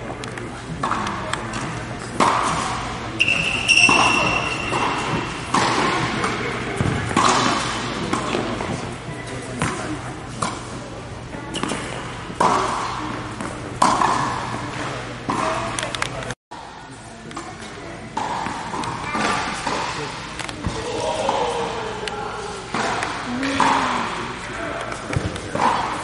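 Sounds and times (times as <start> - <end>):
tennis ball bouncing on court: 11.5 - 15.6.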